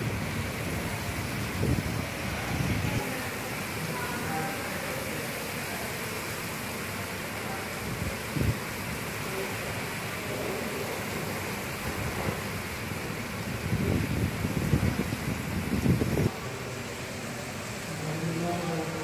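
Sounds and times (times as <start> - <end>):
heavy rain pouring: 0.0 - 19.0.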